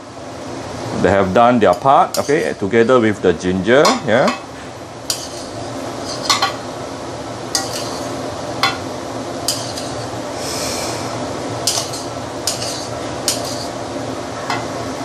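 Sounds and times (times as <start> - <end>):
skimmer clinking against wok: 1.7 - 2.7, 3.8 - 4.5, 5.1 - 6.7, 7.5 - 8.9, 9.5 - 10.1, 11.6 - 13.8.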